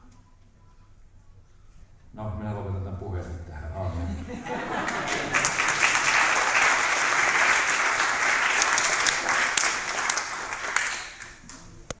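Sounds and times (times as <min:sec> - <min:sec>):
crowd clapping: 0:04.6 - 0:12.0.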